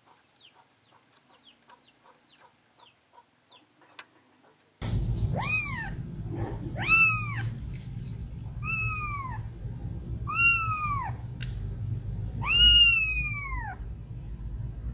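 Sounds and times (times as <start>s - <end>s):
kitten meowing: 5.3s - 6.0s, 6.8s - 7.6s, 8.6s - 9.5s, 10.2s - 11.2s, 12.4s - 13.9s.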